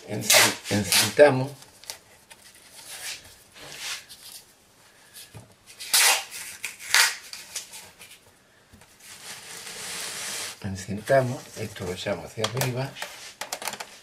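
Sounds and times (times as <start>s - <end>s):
tape ripping off roll: 0.2s - 1.2s, 5.8s - 7.8s, 9.1s - 10.6s.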